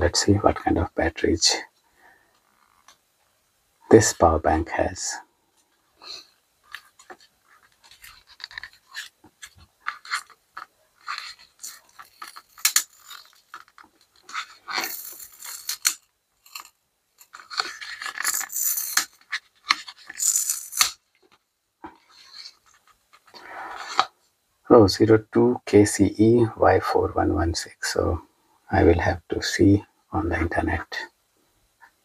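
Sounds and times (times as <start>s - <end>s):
scraping: 6.1s - 21.0s
paper rustling being peeled: 6.7s - 21.4s.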